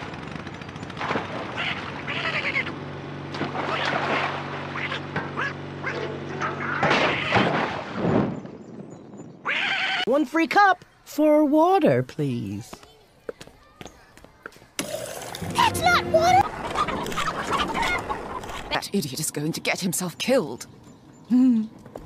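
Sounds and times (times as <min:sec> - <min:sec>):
quacking cartoon voice: 0:01.6 - 0:02.7.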